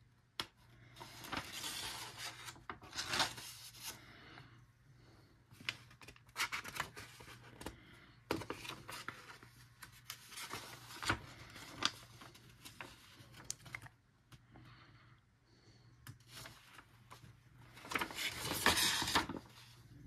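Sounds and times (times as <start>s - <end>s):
paper pages rustling: 0.8s - 4.1s, 5.5s - 13.9s, 16.1s - 20.0s.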